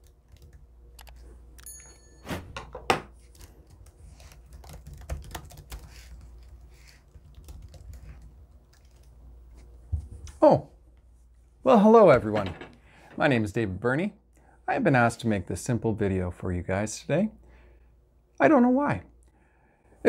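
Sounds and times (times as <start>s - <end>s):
laptop keyboard typing: 0.0s - 1.2s, 3.2s - 9.2s
brief high ring: 1.6s - 2.6s.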